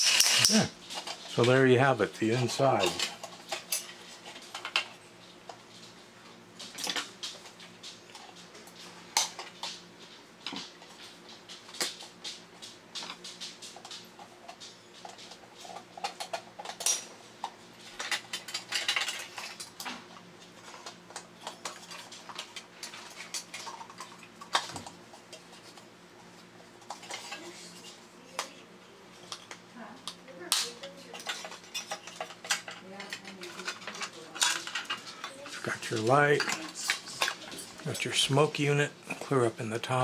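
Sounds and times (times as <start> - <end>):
toy parts clicking and clattering: 0.0 - 1.6, 6.6 - 9.8, 10.4 - 20.0, 20.6 - 24.9, 26.8 - 28.6, 29.2 - 38.4.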